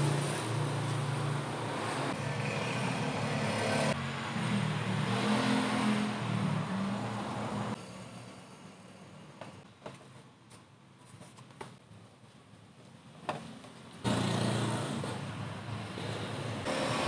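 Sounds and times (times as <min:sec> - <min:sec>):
engine running: 0:16.6 - 0:17.0.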